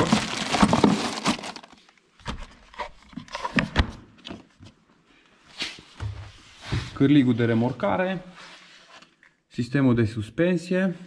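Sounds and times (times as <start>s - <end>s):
hands knocking plastic compartment: 0.0s - 1.6s.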